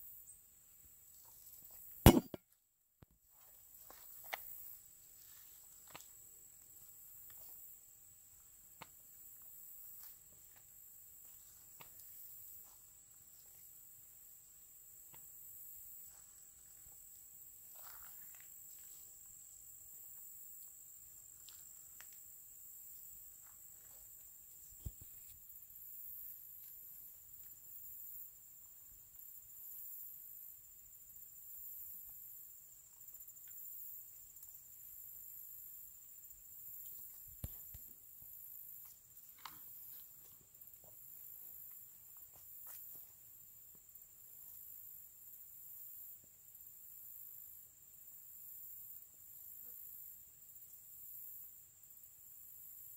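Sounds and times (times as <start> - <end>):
sharp knock: 2.1 - 2.4
high insect drone: 3.4 - 52.9.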